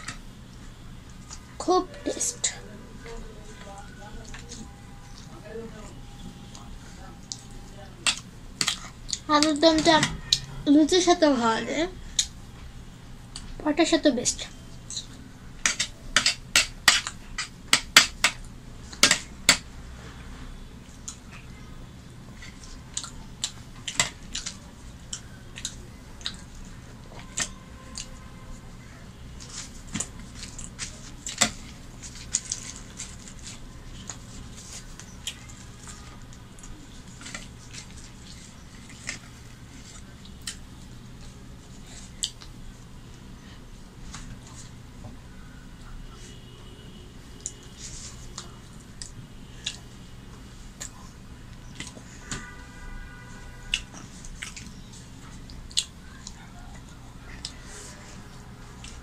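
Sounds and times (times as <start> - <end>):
fingers eating food on plates: 22.4 - 28.2, 47.4 - 52.4, 53.7 - 59.0.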